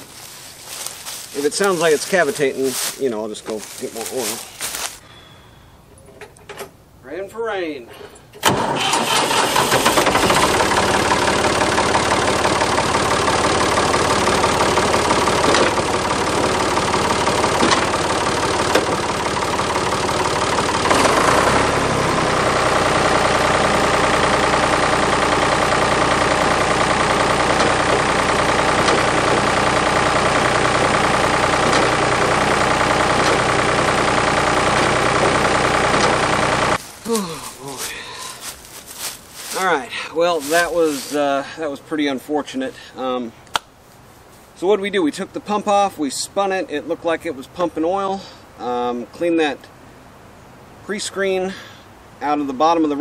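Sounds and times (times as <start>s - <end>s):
backhoe engine running: 8.0s - 41.2s.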